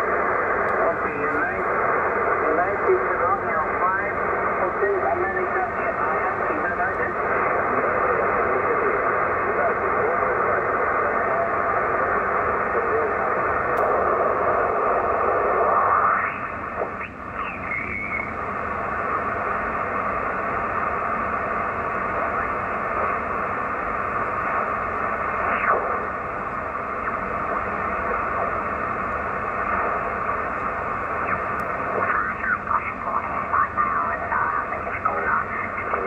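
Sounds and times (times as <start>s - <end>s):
garbled radio voices: 0.0s - 18.4s, 25.2s - 26.1s, 29.6s - 36.0s
radio static hiss: 0.0s - 36.0s
gliding radio whistles: 15.4s - 18.4s.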